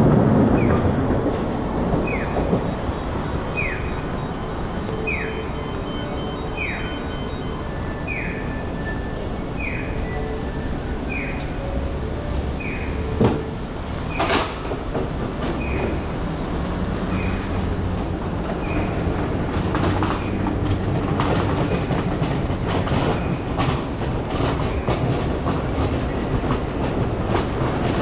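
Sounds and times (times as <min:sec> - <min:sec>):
tram wheels clattering over rails: 0:00.0 - 0:28.0
falling electronic chirp: 0:03.1 - 0:10.5.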